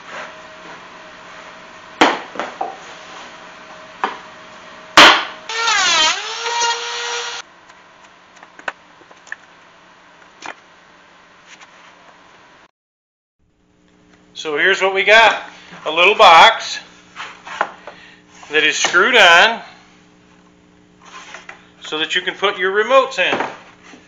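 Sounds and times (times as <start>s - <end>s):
power tool motor whining: 5.5s - 7.4s.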